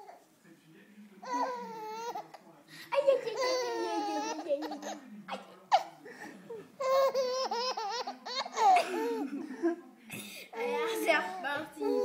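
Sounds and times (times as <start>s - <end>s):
baby laughing: 3.0s - 6.0s, 6.8s - 9.3s.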